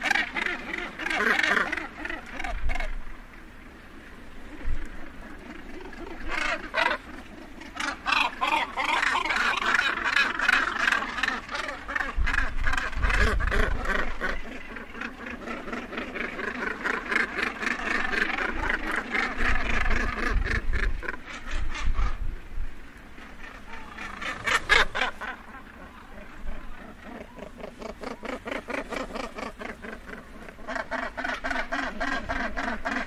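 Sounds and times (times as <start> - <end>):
seabirds croaking calls: 0.0 - 22.5, 23.1 - 33.0.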